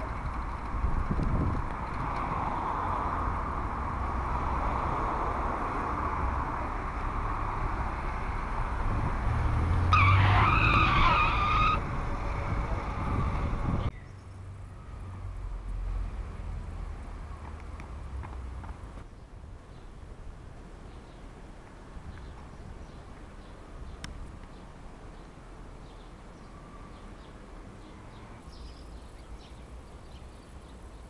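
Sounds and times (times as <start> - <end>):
car passing close: 0.0 - 19.0
outdoor background noise: 0.0 - 31.0
street traffic hum: 0.0 - 31.0
tyres squealing: 9.9 - 11.8.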